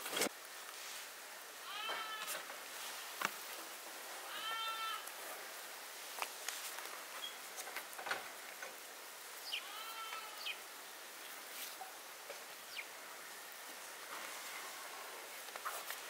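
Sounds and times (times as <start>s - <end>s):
goat or sheep bleat: 1.6s - 2.4s, 4.2s - 5.1s, 9.6s - 10.6s.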